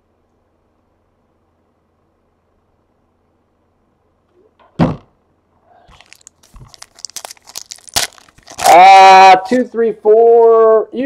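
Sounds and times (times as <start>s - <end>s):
single thump: 4.6s - 5.1s
foil wrapper tearing and crinkling: 5.9s - 9.7s.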